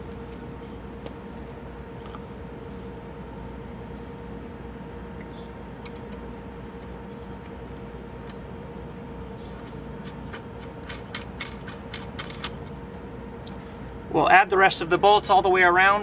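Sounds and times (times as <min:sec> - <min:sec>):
steady background hum: 0:00.0 - 0:16.0
metallic clicks of washers and nut: 0:10.0 - 0:12.6.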